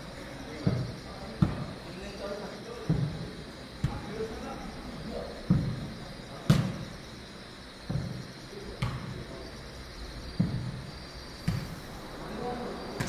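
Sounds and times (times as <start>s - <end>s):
ball bouncing dull thuds: 0.5s - 1.8s, 2.8s - 4.3s, 5.4s - 7.0s, 7.8s - 9.4s, 10.2s - 11.8s.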